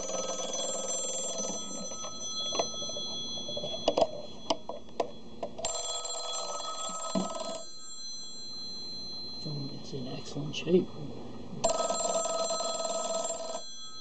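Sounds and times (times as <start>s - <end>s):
telephone bell ringing: 0.0s - 9.8s, 11.6s - 14.0s
phone knocks and clunks: 6.8s - 7.6s.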